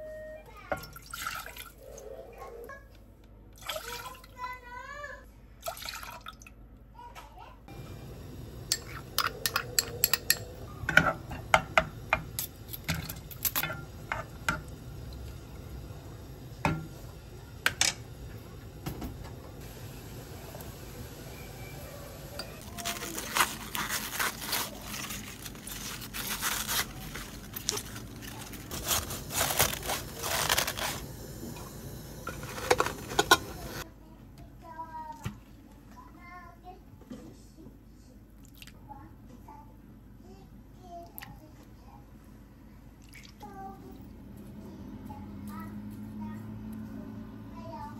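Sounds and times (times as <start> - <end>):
liquid poured into a pot: 5.6 - 6.5
utensils clinking against pots: 8.7 - 14.8, 31.6 - 33.8.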